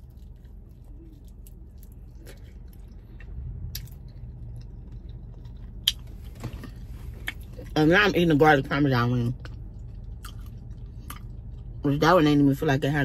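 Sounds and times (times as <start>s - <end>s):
chewing mouth sounds: 0.0s - 7.8s, 9.2s - 11.8s.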